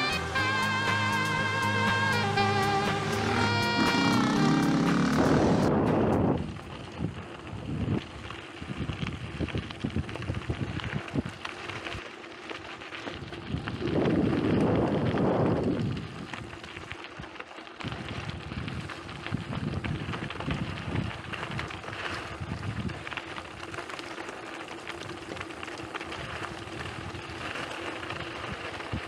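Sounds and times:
bike rattling: 0.0s - 29.0s
bike tyres crunching on gravel: 0.0s - 29.0s
wind buffeting microphone: 4.8s - 11.4s, 13.4s - 16.5s, 17.8s - 23.1s.

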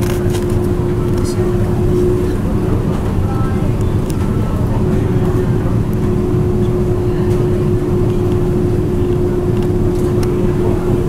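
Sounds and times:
constant hum: 0.0s - 11.0s
ship engine and hull rumble: 0.0s - 11.0s.

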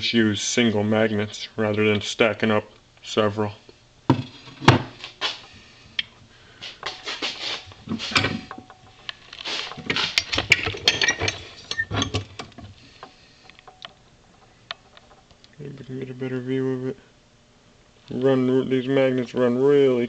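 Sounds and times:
metal parts clinking and scraping: 7.9s - 12.5s.

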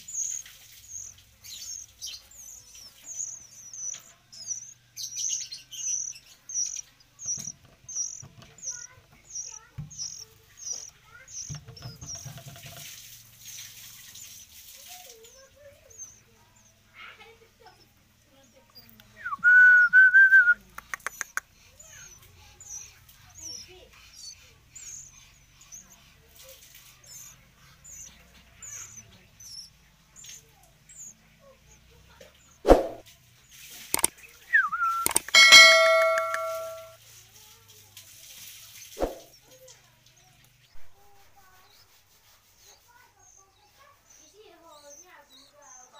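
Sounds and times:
faint hiss and rustling: 0.0s - 19.2s, 36.8s - 45.9s
nestlings begging with high chirps: 0.0s - 19.2s, 20.6s - 32.6s, 33.3s - 37.0s, 38.5s - 45.9s.

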